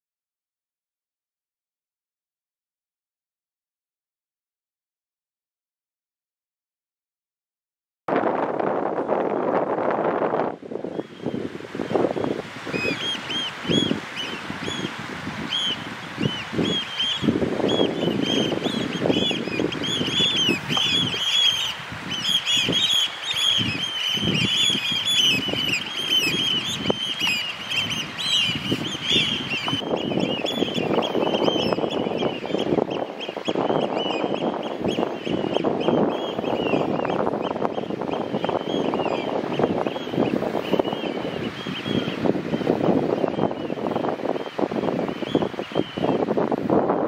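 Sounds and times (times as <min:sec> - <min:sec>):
birds piping in flight: 0:09.8 - 0:47.0.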